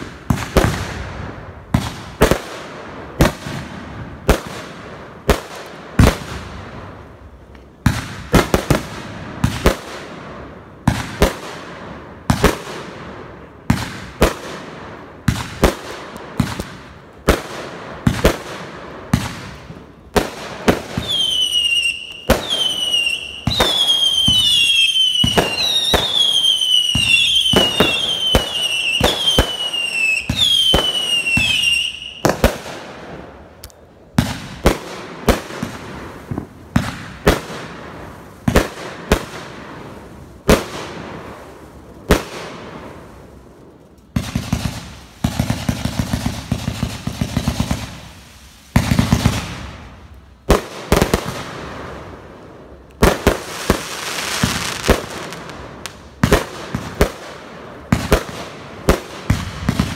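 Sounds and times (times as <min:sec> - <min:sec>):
fireworks bangs: 0:00.0 - 0:59.9
falling firework whistles: 0:20.7 - 0:32.5.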